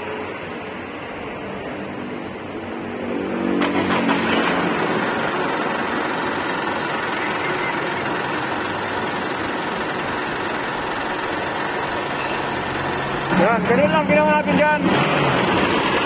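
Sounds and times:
diesel engine starting and idling: 3.5s - 16.0s.

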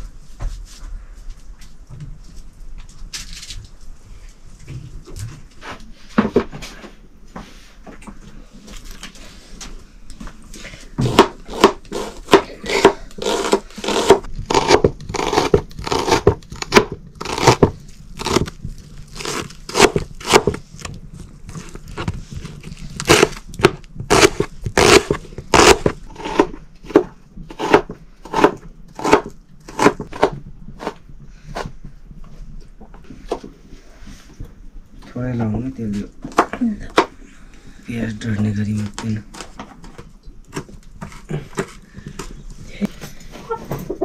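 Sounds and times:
knife chopping onions on board: 11.0s - 18.5s, 23.1s - 31.7s.

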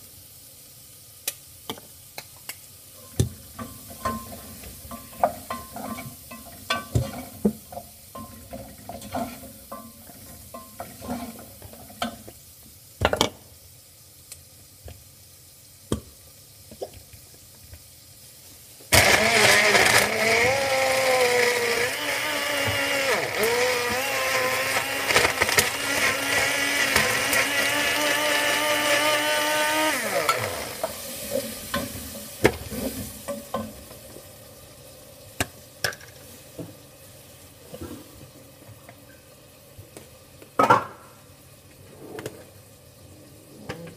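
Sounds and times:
blender motor running: 18.9s - 30.9s.

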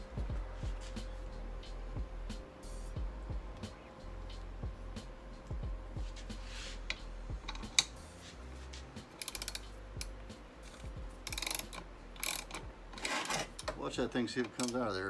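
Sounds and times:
socket ratchet clicking: 6.9s - 8.0s, 9.1s - 13.8s, 14.4s - 14.9s.

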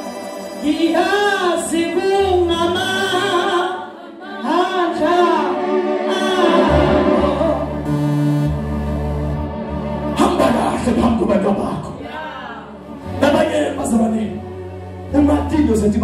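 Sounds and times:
woman singing through loudspeakers: 2.8s - 5.5s.

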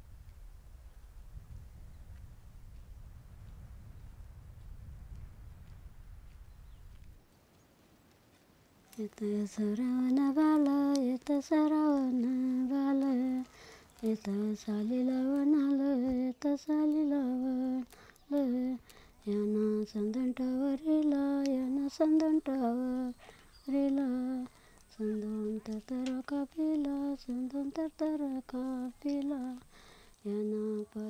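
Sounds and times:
woman singing wordless melody: 8.9s - 31.0s.

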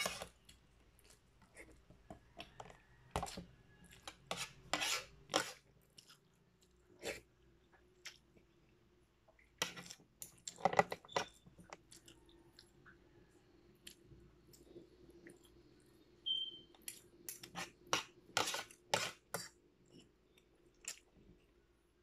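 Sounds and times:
cutlery scraping a plate: 0.0s - 0.3s, 4.0s - 5.6s, 17.4s - 19.5s
brief squeak: 16.3s - 16.7s.

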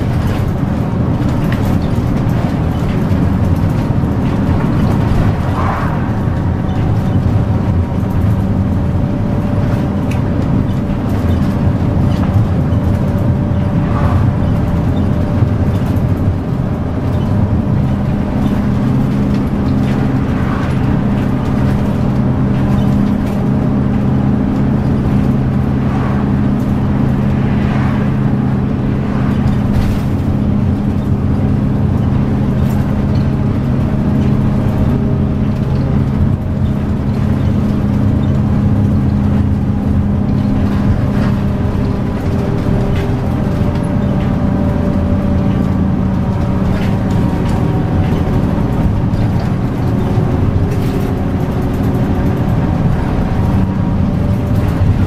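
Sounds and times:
bus diesel engine running: 0.0s - 55.0s
tyre and road noise: 0.0s - 55.0s.

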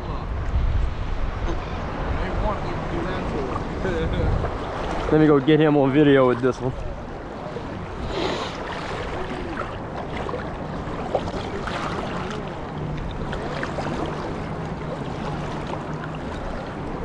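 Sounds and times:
wind on microphone: 0.0s - 5.3s
surf water sloshing: 0.0s - 17.0s.

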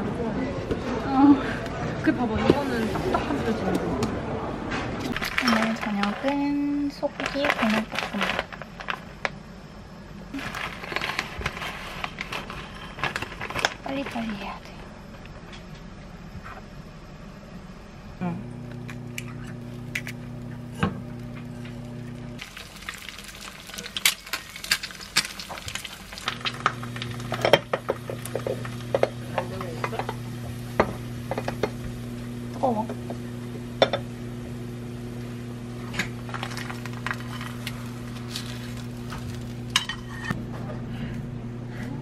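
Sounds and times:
steady low hum: 0.0s - 42.0s
food sizzling: 18.5s - 40.4s.

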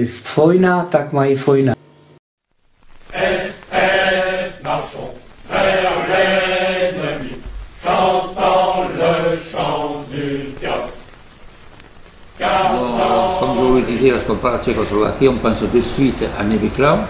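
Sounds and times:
man singing slow song: 12.4s - 14.7s.

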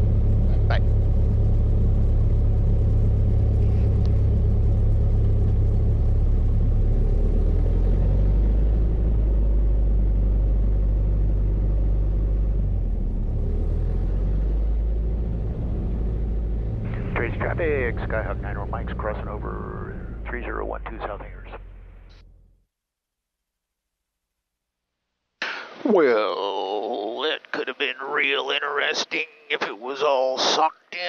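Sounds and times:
propeller aircraft engine drone: 0.0s - 22.4s.

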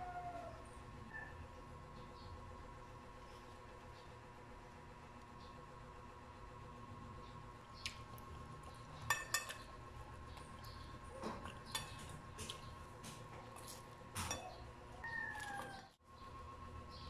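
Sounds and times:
faint steady hum: 0.0s - 17.0s
spoon clinking on ceramic plate: 9.1s - 9.6s.

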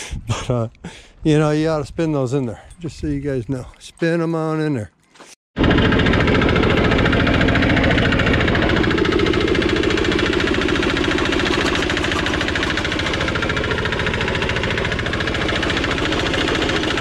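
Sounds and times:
diesel engine knocking: 5.6s - 17.0s
jaw crusher crushing rocks: 5.6s - 17.0s.

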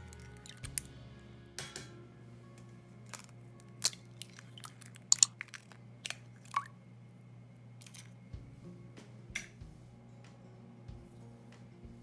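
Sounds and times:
eggshells cracking: 0.0s - 0.9s, 3.0s - 6.7s, 7.8s - 8.2s.

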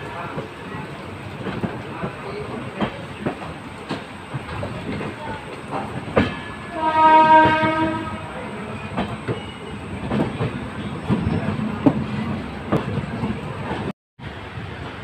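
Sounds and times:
passing train: 0.0s - 15.0s
train wheels clicking over rail joints: 1.2s - 6.5s
locomotive horn blast: 6.6s - 8.4s.

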